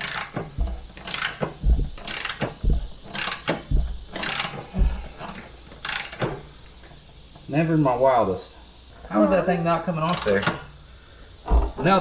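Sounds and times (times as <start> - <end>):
dull knocks: 0.0 - 5.4, 11.4 - 12.0
ratchet wrench clicking: 0.0 - 6.5, 10.0 - 10.7.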